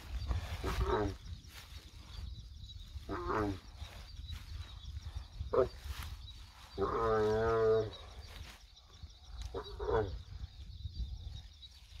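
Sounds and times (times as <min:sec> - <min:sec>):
camel moaning: 0:06.8 - 0:08.1.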